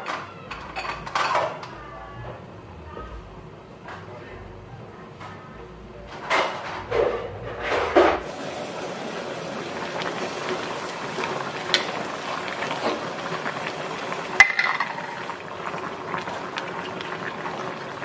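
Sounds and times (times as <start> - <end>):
water boiling in a pot: 8.2 - 18.0
metal clink against pot: 14.4 - 15.1.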